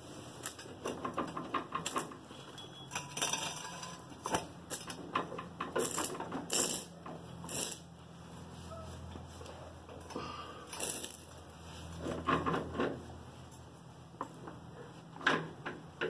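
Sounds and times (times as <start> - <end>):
metallic clicks and clanks: 0.4 - 7.9.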